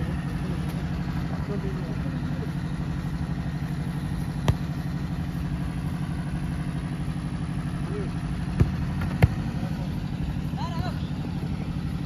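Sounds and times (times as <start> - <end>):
low pulsing drone: 0.0 - 12.0
football being kicked: 4.2 - 5.1, 8.4 - 9.8.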